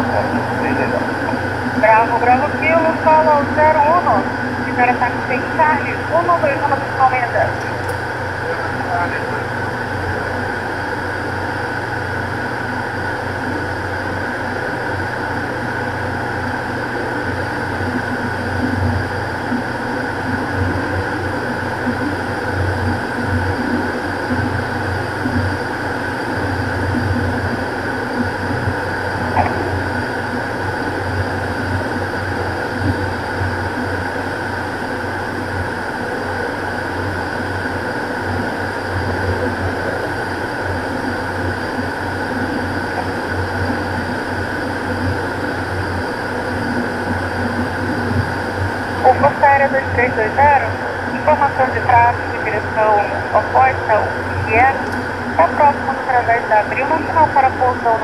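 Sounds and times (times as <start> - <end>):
airflow noise: 0.0 - 10.3
turboprop engines droning: 0.0 - 58.0.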